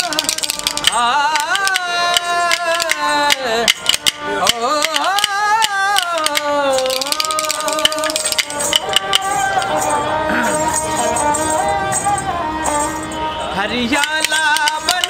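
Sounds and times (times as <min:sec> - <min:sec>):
wooden clappers clicking: 0:00.0 - 0:10.0, 0:13.9 - 0:15.0
bowed string instrument: 0:00.0 - 0:15.0
man singing long notes: 0:00.0 - 0:15.0.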